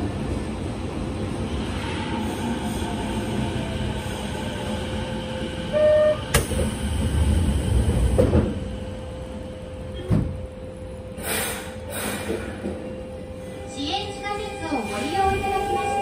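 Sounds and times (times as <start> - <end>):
train humming: 0.0 - 16.0
air hiss: 11.2 - 12.5.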